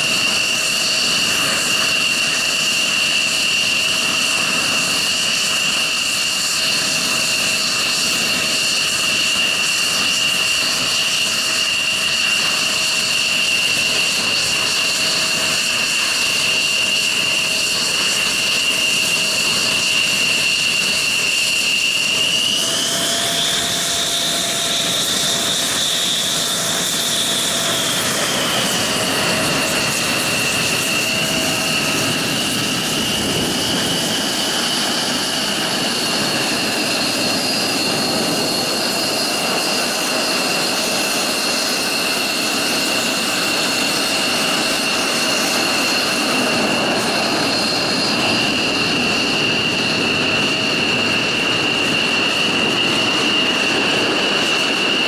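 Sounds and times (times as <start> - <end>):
jet engine whine: 0.0 - 55.0.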